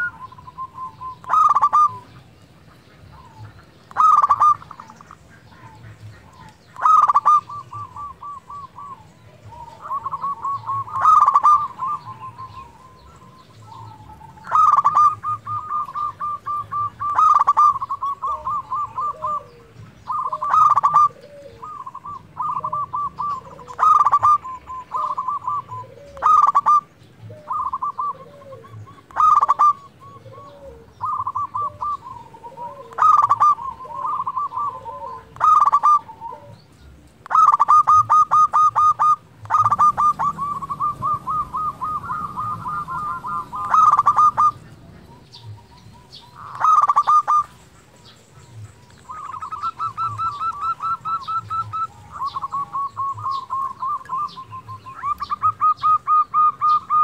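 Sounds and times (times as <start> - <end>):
dove cooing song: 0.0 - 57.0.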